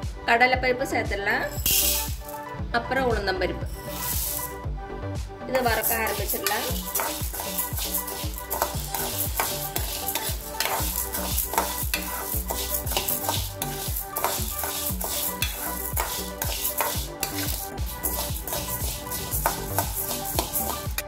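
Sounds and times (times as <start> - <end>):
spoon scraping metal pan: 1.7 - 2.3, 3.7 - 4.5, 5.6 - 21.0
lentils rattling in pan: 1.7 - 2.4, 3.8 - 4.5, 5.6 - 21.0.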